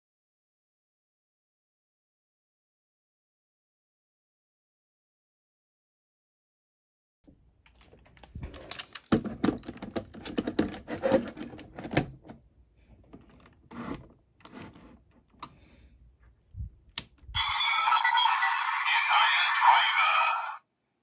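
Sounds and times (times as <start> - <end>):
hard plastic clicking and rattling: 7.7 - 12.4.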